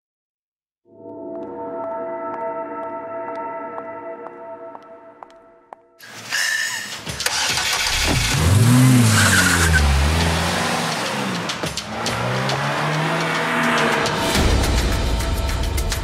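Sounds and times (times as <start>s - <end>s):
car engine starting and revving: 6.1s - 14.7s.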